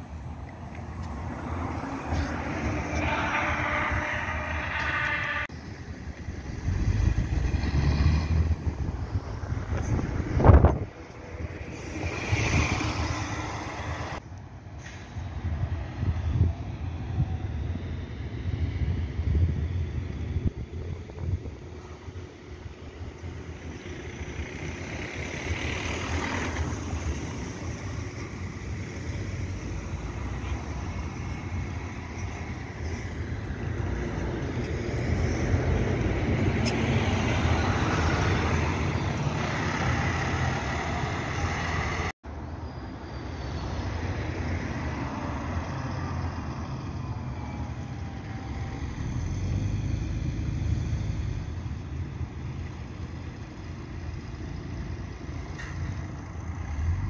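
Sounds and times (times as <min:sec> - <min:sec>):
bus approaching: 0:00.0 - 0:57.0
buses driving past: 0:00.0 - 0:57.0.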